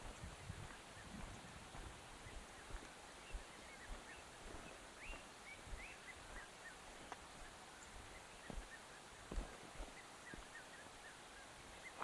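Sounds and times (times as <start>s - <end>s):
footsteps on dirt path: 0.0s - 11.2s
birds chirping and whistling: 2.2s - 6.8s.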